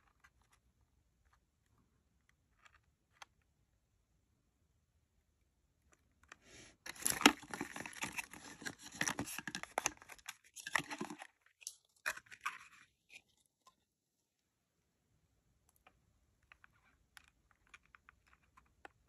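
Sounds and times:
plastic packaging crinkling: 0:06.8 - 0:12.8.

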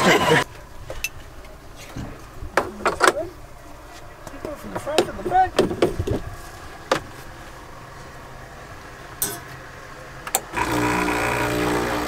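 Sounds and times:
espresso machine pump buzzing: 0:10.5 - 0:12.0.

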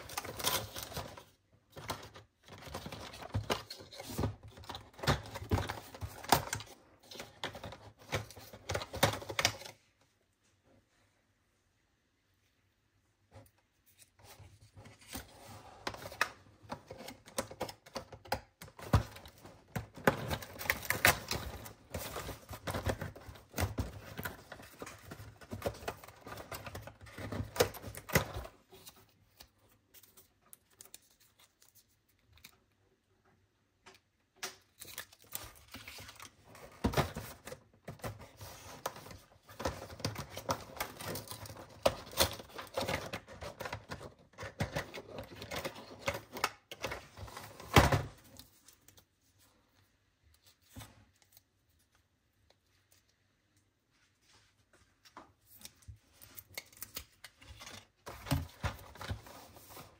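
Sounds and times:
card clicks and crinkles: 0:15.9 - 0:32.7, 0:34.4 - 0:49.1, 0:55.0 - 0:59.9.

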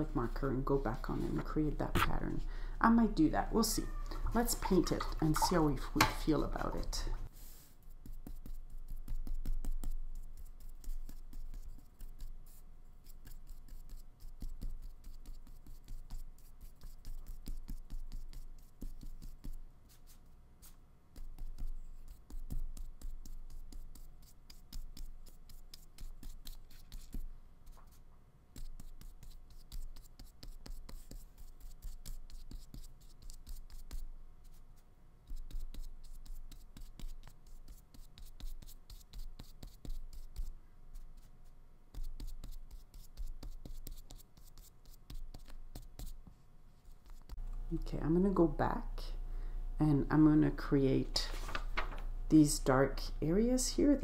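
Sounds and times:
scratchy brush strokes on paper: 0:00.0 - 0:02.5, 0:03.1 - 0:47.4.

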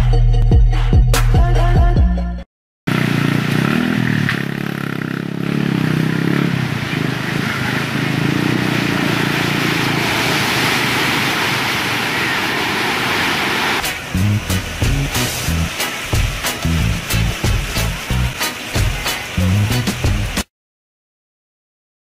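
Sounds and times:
waves breaking: 0:06.2 - 0:20.4.

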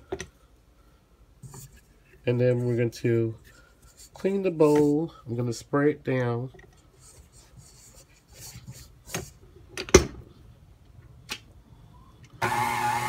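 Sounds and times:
stand mixer motor running: 0:12.4 - 0:13.0.

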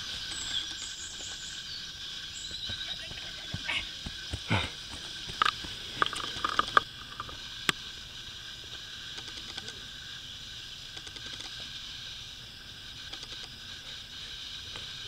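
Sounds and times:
steady high hiss: 0:00.0 - 0:15.0
footsteps on dirt path: 0:02.4 - 0:07.2.

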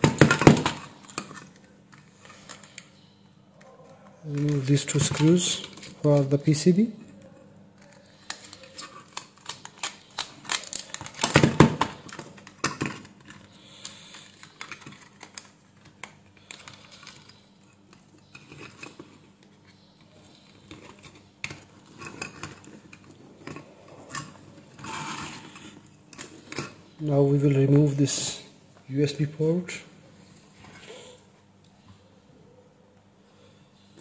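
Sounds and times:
plastic parts clicking and scraping: 0:00.0 - 0:03.0, 0:03.6 - 0:26.9.

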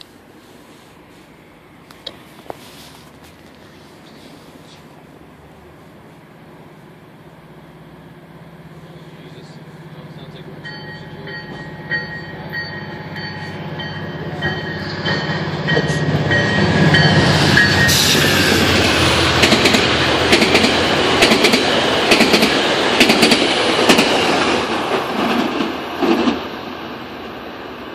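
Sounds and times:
train passing: 0:00.0 - 0:27.9
wheels clicking over rail joints: 0:19.3 - 0:26.4.

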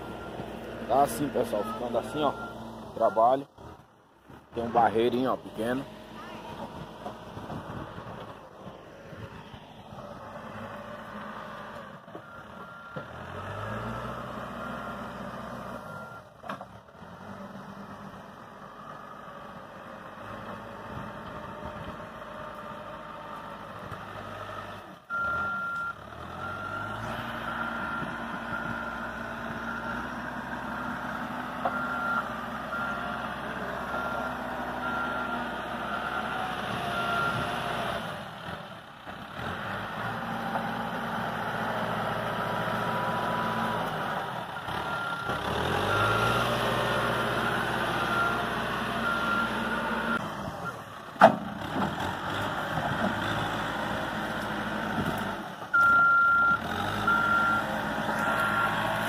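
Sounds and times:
diesel engine revving: 0:00.0 - 0:59.0
reversing alarm beeping: 0:01.0 - 0:03.4, 0:33.8 - 0:37.5, 0:55.8 - 0:59.0.

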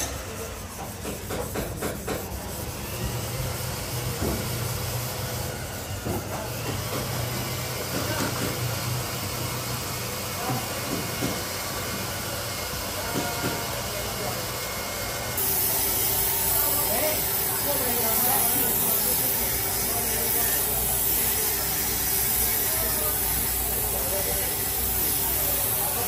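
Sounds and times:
steady hiss: 0:15.4 - 0:26.0.

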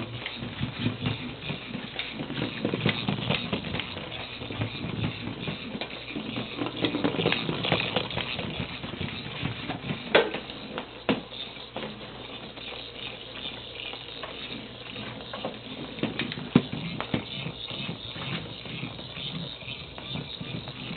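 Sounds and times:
ferrets scrabbling on tile floor: 0:00.0 - 0:20.9
motorized toy ball rolling: 0:00.0 - 0:20.9.

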